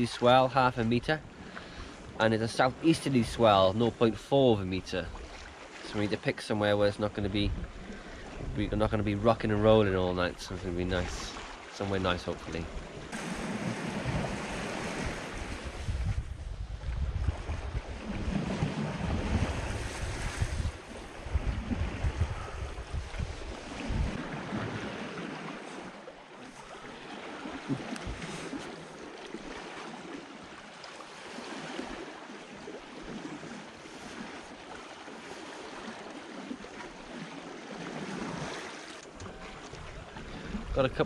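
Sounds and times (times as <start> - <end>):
water rushing along a hull: 0.0 - 41.0
wind buffeting microphone: 7.1 - 11.4, 12.4 - 25.9, 27.4 - 28.8.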